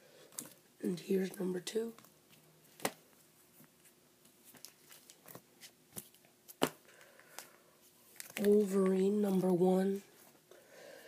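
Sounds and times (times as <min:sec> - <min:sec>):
paper rustling: 0:02.0 - 0:07.5, 0:08.1 - 0:09.6.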